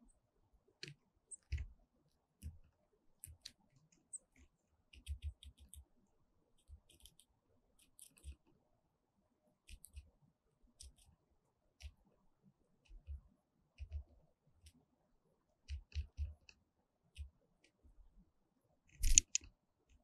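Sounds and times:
woodpecker bill tapping: 0:19.0 - 0:19.4.

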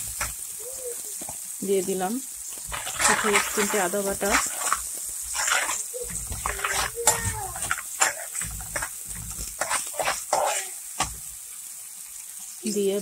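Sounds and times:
metal spatula scraping frying pan: 0:02.4 - 0:11.3
whining voice-like sound: 0:05.5 - 0:08.4.

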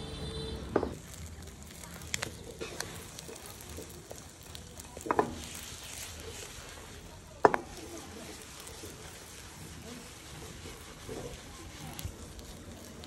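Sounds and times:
sandwich sizzling in frying pan: 0:00.2 - 0:13.0.

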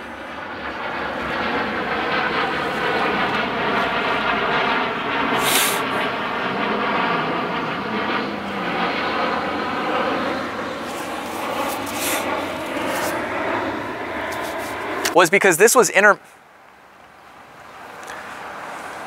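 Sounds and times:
airplane engine drone: 0:00.0 - 0:19.0
brief hiss: 0:05.4 - 0:05.8.

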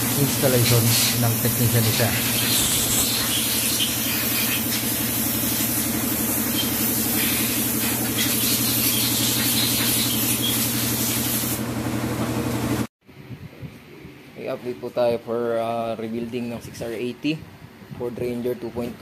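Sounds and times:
compressed air hissing: 0:00.0 - 0:11.6.

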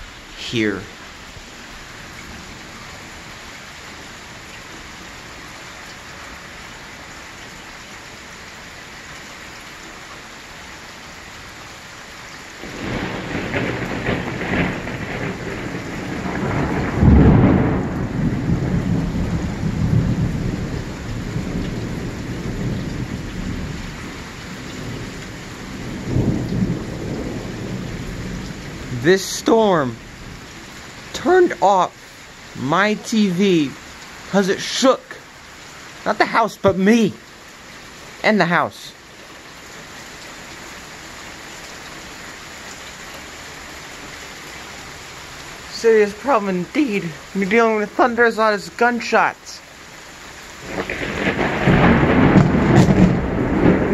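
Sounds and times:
heavy rain: 0:00.0 - 0:53.9
rolling thunder: 0:12.6 - 0:29.0, 0:50.6 - 0:53.9.

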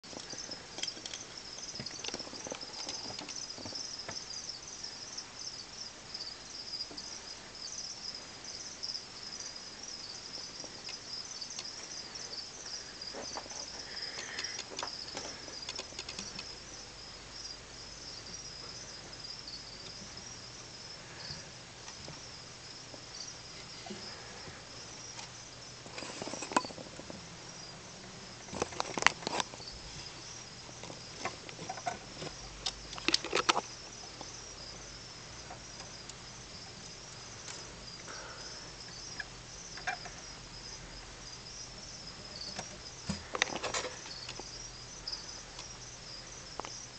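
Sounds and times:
rustling and clicking: 0:00.0 - 0:04.3, 0:13.1 - 0:16.6, 0:25.1 - 0:27.2, 0:28.4 - 0:30.0, 0:30.7 - 0:34.4, 0:42.2 - 0:44.5
crickets chirping: 0:00.0 - 0:46.9.

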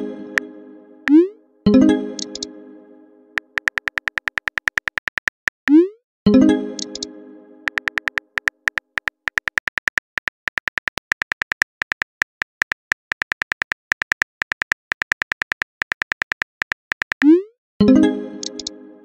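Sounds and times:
phone keyboard typing clicks: 0:02.2 - 0:02.5, 0:03.4 - 0:05.8, 0:06.8 - 0:07.1, 0:07.7 - 0:17.4, 0:18.4 - 0:18.7.

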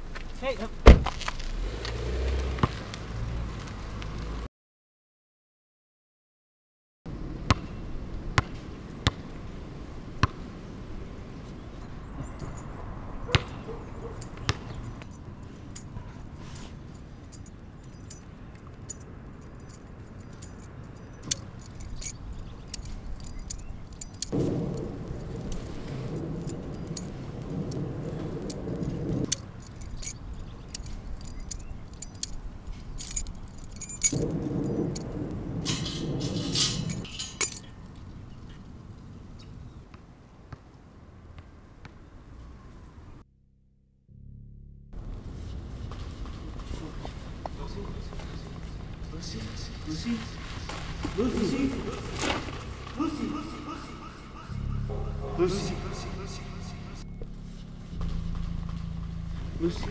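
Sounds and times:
car passing: 0:00.7 - 0:04.5, 0:09.8 - 0:37.0, 0:45.0 - 0:59.9
low outdoor hum: 0:07.1 - 0:43.2, 0:44.1 - 0:59.9
small metal object clinking: 0:12.2 - 0:13.4, 0:14.0 - 0:37.8.

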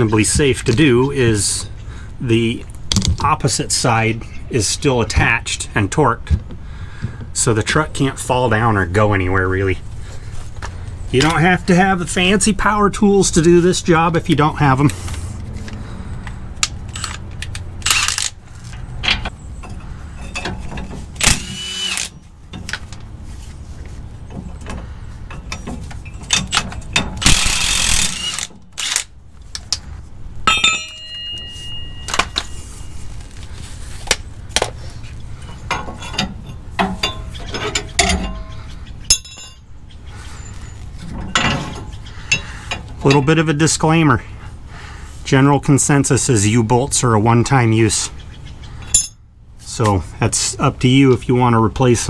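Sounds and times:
power wrench running: 0:17.8 - 0:18.4, 0:21.2 - 0:22.2, 0:27.2 - 0:29.1
nuts clinking against metal: 0:30.4 - 0:32.7, 0:35.5 - 0:39.7
metal clank ringing: 0:30.4 - 0:33.0, 0:35.6 - 0:39.7.

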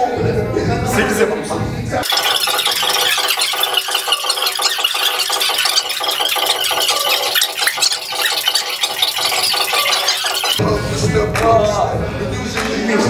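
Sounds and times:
steady dense rattling: 0:02.0 - 0:10.6.

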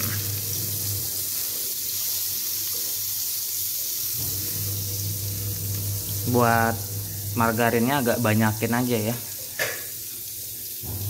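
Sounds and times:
margarine sizzling in a wok: 0:00.0 - 0:11.0.

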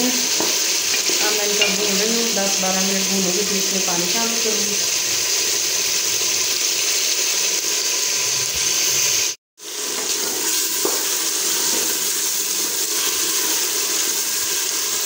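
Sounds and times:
chickpeas sizzling in a pot: 0:00.0 - 0:15.0.

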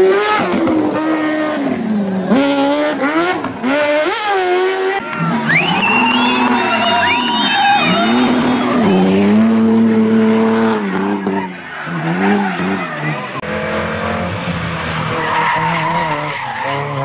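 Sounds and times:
race car engine revving: 0:00.0 - 0:17.0
tyres squealing: 0:05.0 - 0:09.6.

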